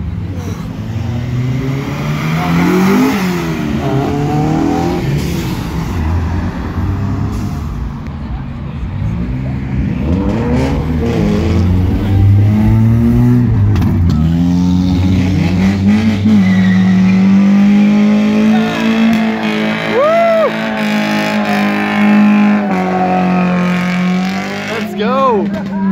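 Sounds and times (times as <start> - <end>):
car engines revving: 0.0 - 25.9.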